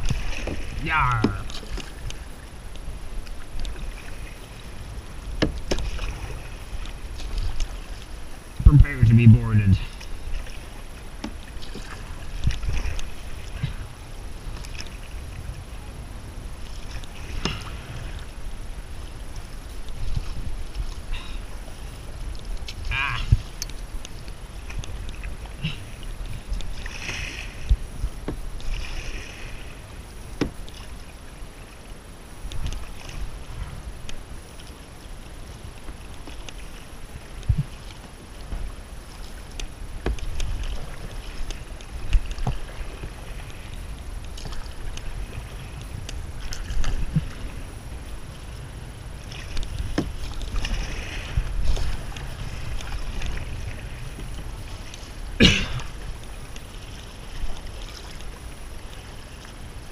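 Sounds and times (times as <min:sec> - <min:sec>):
paddle splashing water: 0:00.0 - 0:59.9
steady low rumble: 0:04.4 - 0:28.7.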